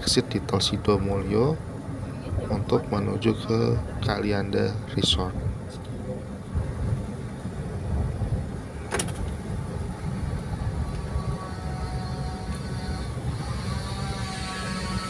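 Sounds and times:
car interior road rumble: 0.0 - 15.0.

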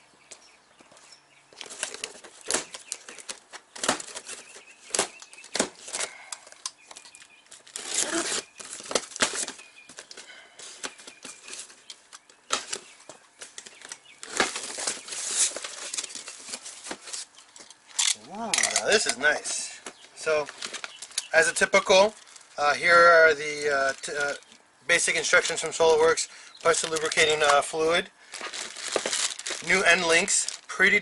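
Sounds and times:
strap and cardboard rustling: 0.9 - 22.6, 26.6 - 31.0
plastic straps snapping: 1.6 - 10.2.

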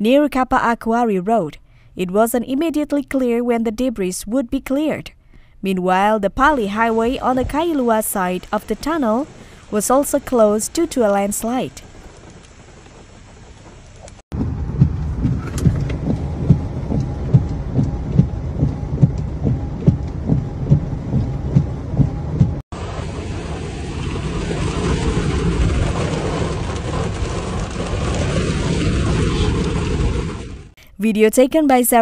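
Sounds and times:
floodwater rushing: 6.5 - 18.2, 22.8 - 30.7
heavy rain heard from car: 6.5 - 20.4, 22.8 - 30.8
regular thuds: 11.4 - 22.6.

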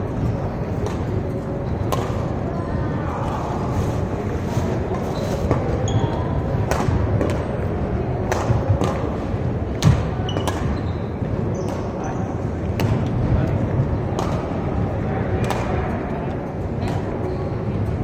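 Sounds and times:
racket hitting shuttlecock: 1.8 - 2.3, 6.6 - 7.5, 8.2 - 10.8, 14.2 - 14.6
shoe squeaks on court: 5.0 - 6.4, 10.2 - 12.4.

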